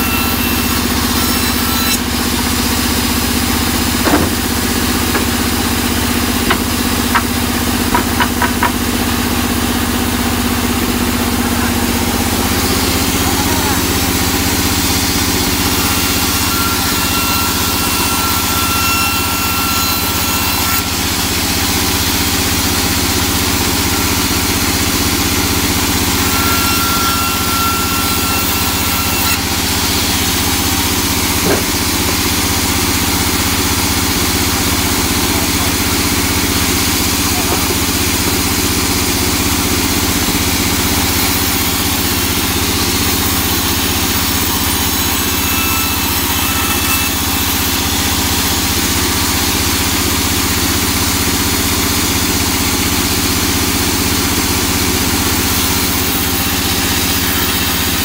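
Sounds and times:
band saw ripping wood: 0.0s - 8.8s.

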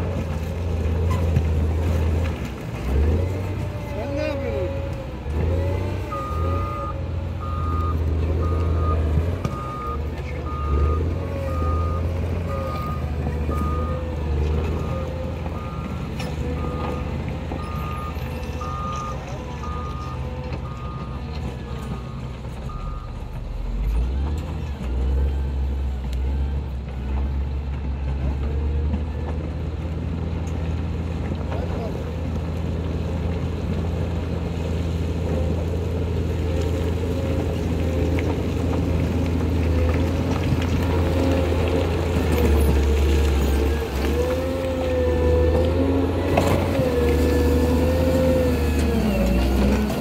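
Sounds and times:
diesel engine running under load: 0.0s - 50.0s
reversing alarm beeping: 6.1s - 14.0s, 16.6s - 26.6s.

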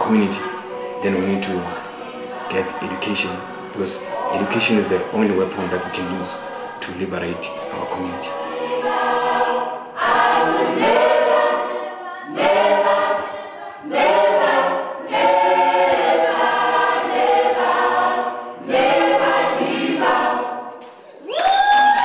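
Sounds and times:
choir singing unaccompanied: 0.0s - 20.8s
clapping: 20.8s - 22.0s
rising whoop: 21.2s - 22.0s.

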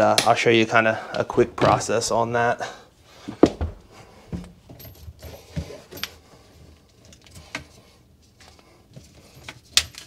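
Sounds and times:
clicks and knocks of plumbing parts: 8.4s - 10.0s.

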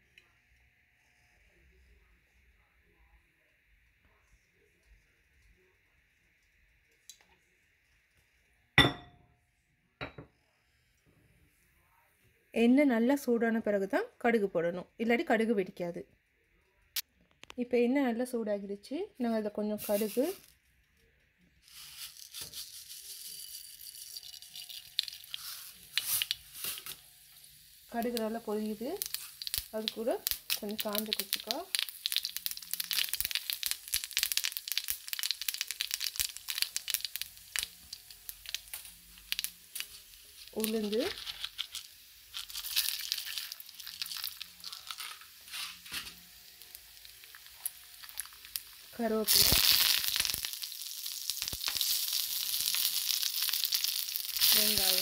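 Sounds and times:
seeds sizzling in hot oil: 19.7s - 20.6s, 21.6s - 55.0s
seeds popping with sharp crackles: 21.7s - 27.0s, 28.0s - 55.0s.

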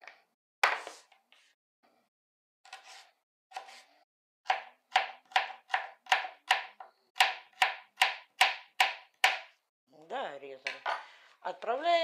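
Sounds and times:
knife chopping cucumber: 4.4s - 9.5s.

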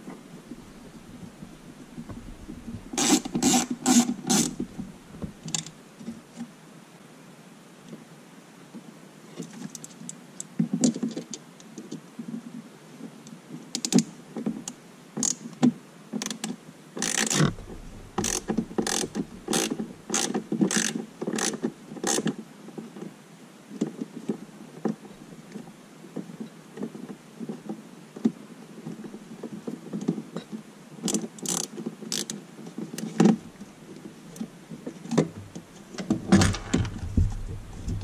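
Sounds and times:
scraping burst: 17.3s - 20.3s
screwdriver clicking: 18.2s - 21.5s.

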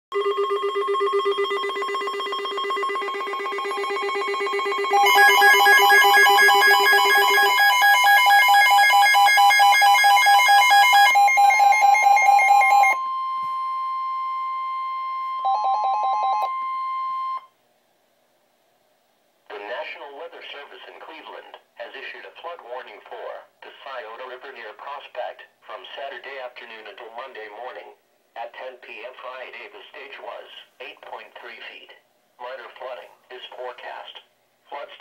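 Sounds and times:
electronic alarm beeps: 0.1s - 17.5s
steady warning tone: 0.2s - 17.5s.

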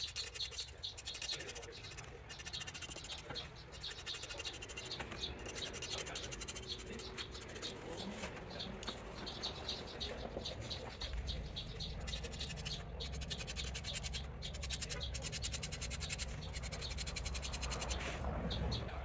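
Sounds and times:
marker scratching and squeaking: 0.0s - 18.6s.

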